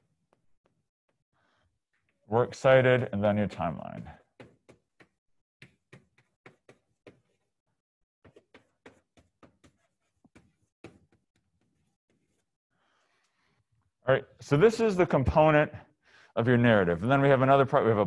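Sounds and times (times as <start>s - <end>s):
chalk tapping on a chalkboard: 3.9s - 7.5s, 8.2s - 12.5s.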